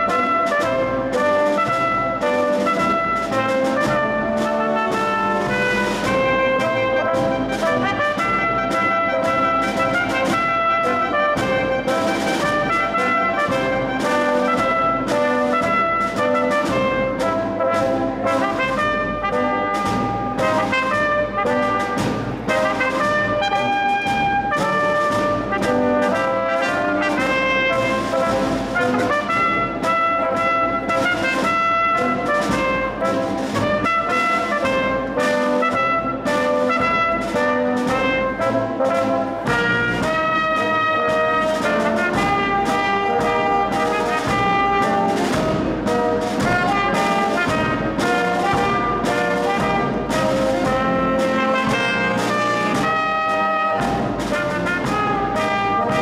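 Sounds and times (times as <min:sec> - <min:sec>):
brass band playing: 0:00.0 - 0:56.0
snare and bass drum beat: 0:00.0 - 0:56.0.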